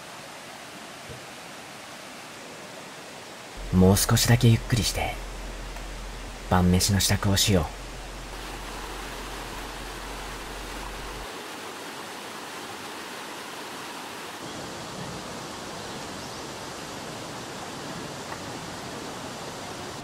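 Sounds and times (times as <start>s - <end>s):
stream water running over stones: 0.0s - 20.0s.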